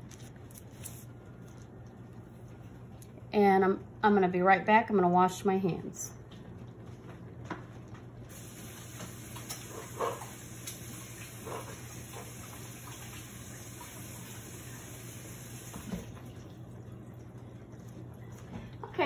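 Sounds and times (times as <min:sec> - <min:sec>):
tap running: 0:06.3 - 0:14.0, 0:15.4 - 0:16.3.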